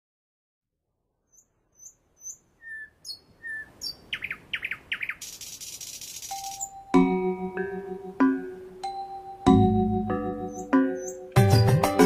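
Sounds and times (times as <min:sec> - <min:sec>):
bird chirping and whistling: 0:01.3 - 0:06.8, 0:10.4 - 0:11.9.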